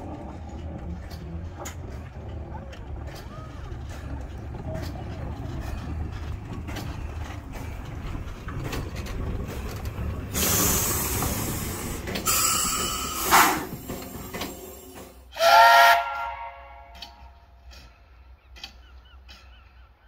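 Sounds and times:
hissing steam: 10.3 - 15.0
steam whistle blast: 15.3 - 17.0.

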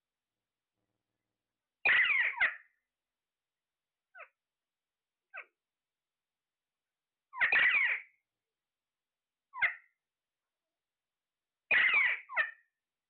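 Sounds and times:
parakeets squawking: 1.8 - 2.6, 7.4 - 8.0, 11.7 - 12.6.

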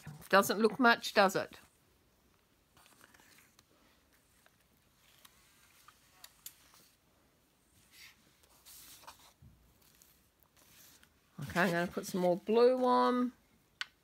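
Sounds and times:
paper and card rustling: 2.7 - 7.0, 7.8 - 13.3.

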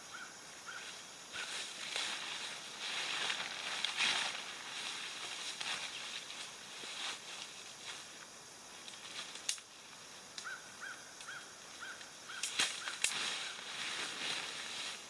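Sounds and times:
tent fabric rustling and flapping: 1.5 - 8.0
sharp clicks and snaps: 8.8 - 9.7.

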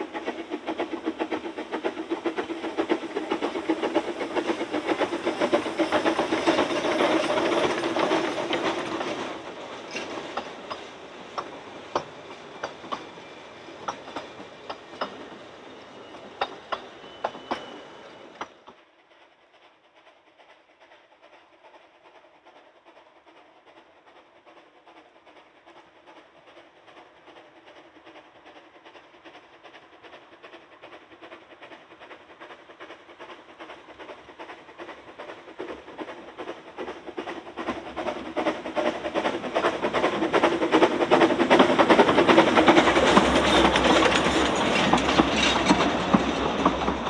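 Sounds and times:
wheels clicking over rail joints: 0.0 - 15.4, 30.5 - 47.0
train wheel and running noise: 0.0 - 47.0.

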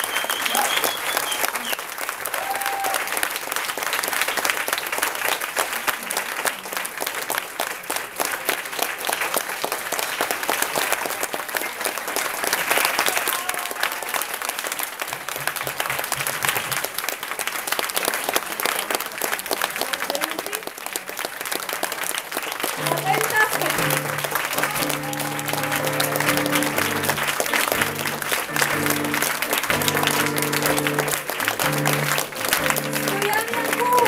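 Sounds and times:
audience applauding: 0.0 - 34.0.

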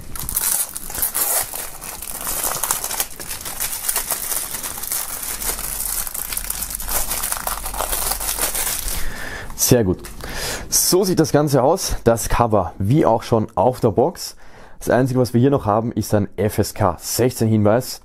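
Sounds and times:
plastic shrink-wrap crinkling: 0.0 - 9.3.

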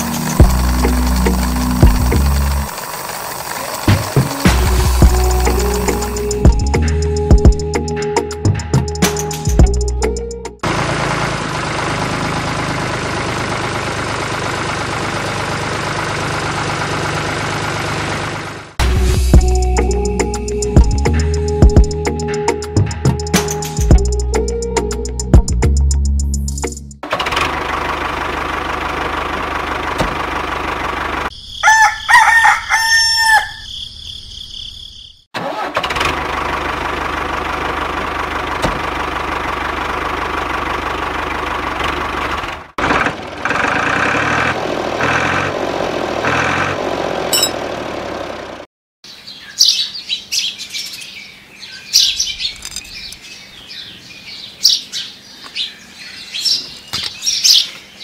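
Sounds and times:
rooster crowing: 31.6 - 33.7
birds chirping: 49.0 - 58.0.

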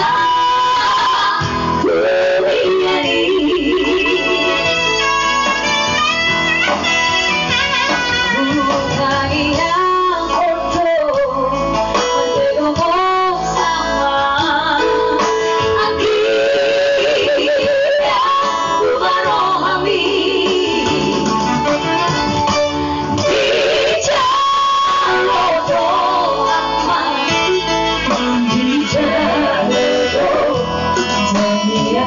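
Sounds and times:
women singing in harmony: 0.0 - 4.8, 8.4 - 11.6, 12.4 - 21.4, 23.2 - 32.0
instrumental accompaniment: 0.0 - 32.0.

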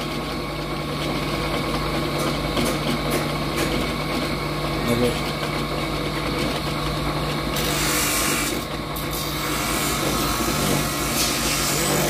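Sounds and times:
bench grinder motor humming: 7.4 - 12.0
horn rasping on grinding wheel: 7.6 - 12.0.

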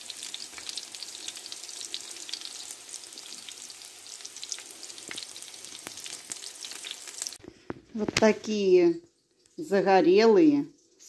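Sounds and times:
meat sizzling in hot oil: 0.0 - 7.4.

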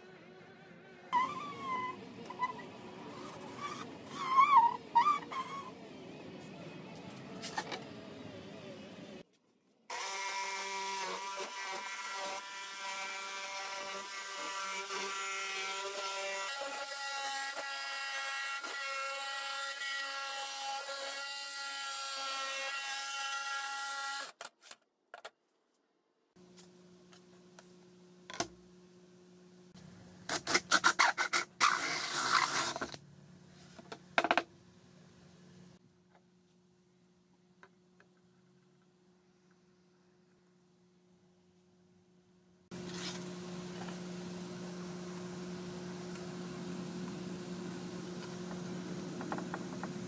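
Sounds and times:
drill with hole saw boring wood: 9.9 - 16.8.

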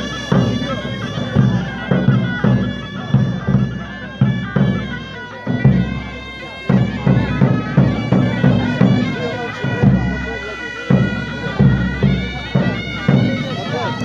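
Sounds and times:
drum beating steady rhythm: 0.0 - 14.0
reedy wind instrument melody: 0.0 - 14.0.

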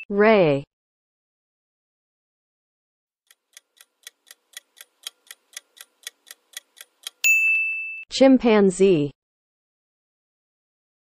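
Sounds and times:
countdown clock ticking: 3.3 - 7.4.

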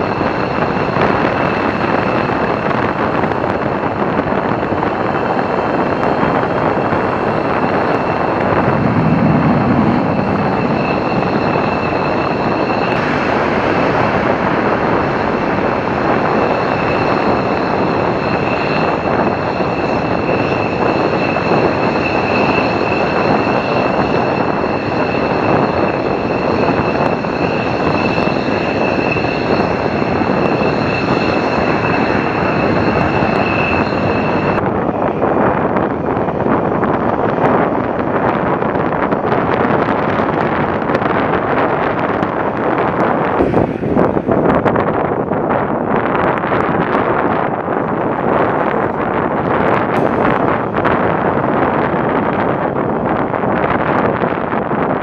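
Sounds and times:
high jet whine: 0.0 - 55.0
jet engine roar: 0.0 - 55.0.

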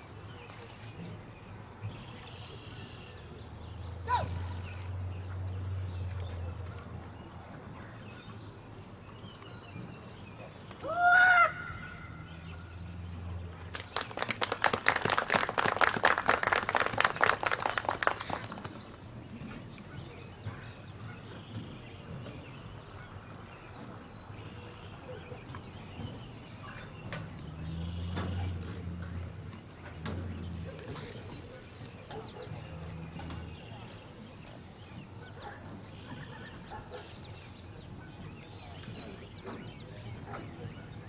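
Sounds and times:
spectators clapping: 13.6 - 19.0.

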